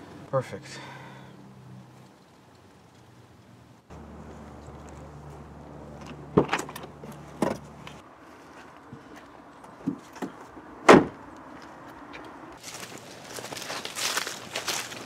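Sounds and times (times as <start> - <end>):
car engine humming: 0.0 - 8.2
car doors slamming: 6.3 - 7.7, 9.9 - 11.2.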